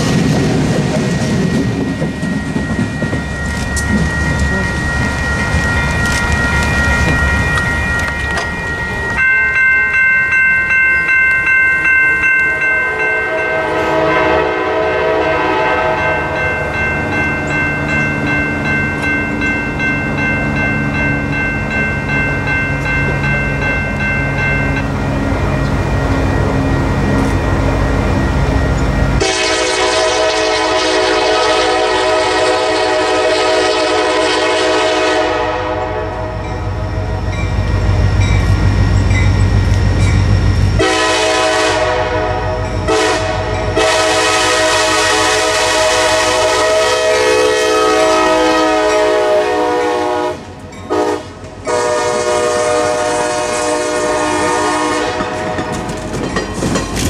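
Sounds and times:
train wheels clicking over rail joints: 0.0s - 9.2s, 55.0s - 57.0s
locomotive air horn: 12.9s - 16.3s, 29.2s - 36.4s, 40.8s - 55.7s.

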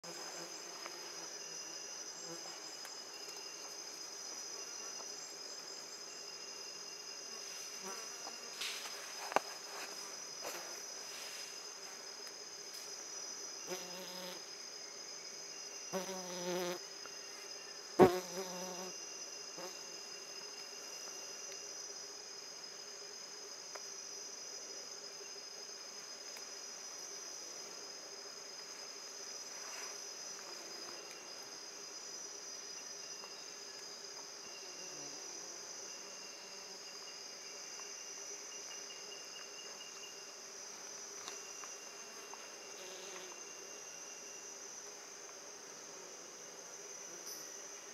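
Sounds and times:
faint high insect trill: 0.0s - 47.9s
insects buzzing: 0.0s - 47.9s.

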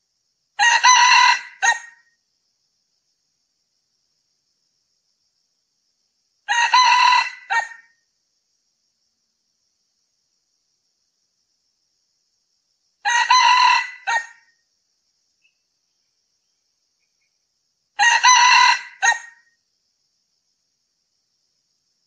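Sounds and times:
rooster crowing: 0.6s - 2.0s, 6.5s - 7.9s, 13.0s - 14.5s, 18.0s - 19.5s.

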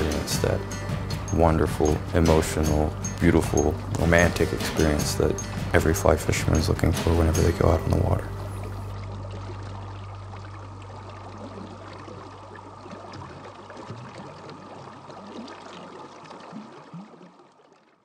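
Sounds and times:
low steady drone: 0.0s - 13.4s.

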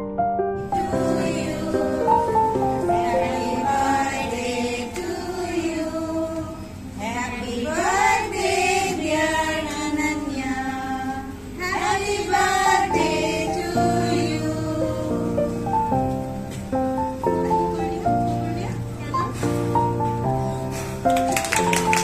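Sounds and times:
choir-like voices singing: 0.6s - 15.5s.

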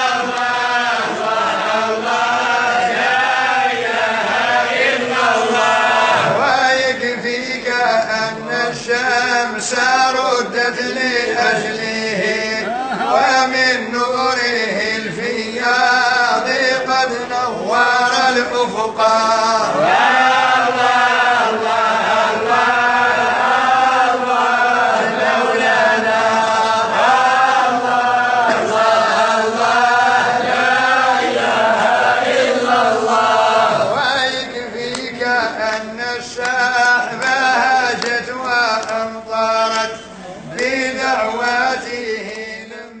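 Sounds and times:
man chanting: 5.4s - 21.7s, 33.7s - 43.0s.

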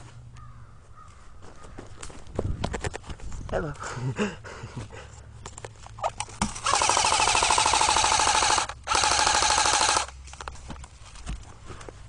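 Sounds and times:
airsoft rifle firing full auto: 6.5s - 10.2s.

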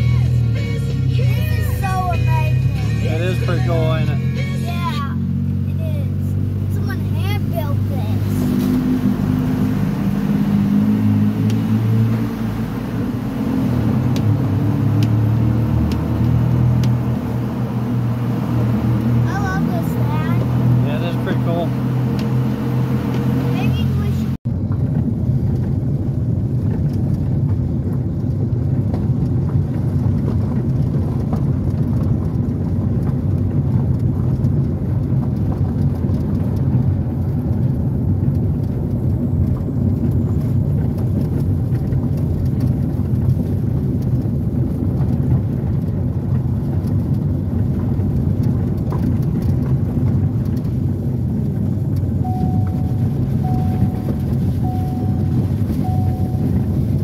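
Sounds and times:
car engine and tyre rumble: 0.0s - 57.0s
gravel crackling under tyres: 0.0s - 57.0s
short repeating beep: 52.3s - 57.0s.

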